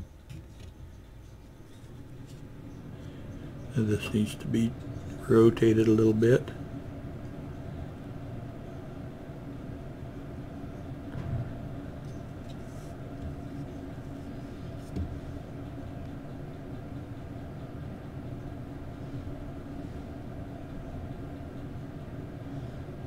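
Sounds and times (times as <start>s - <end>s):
low mechanical hum: 0.0s - 23.0s.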